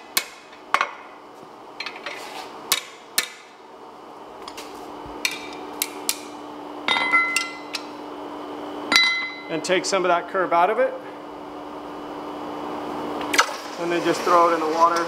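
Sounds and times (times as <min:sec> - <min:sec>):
hammer striking steel: 0:08.9 - 0:09.5.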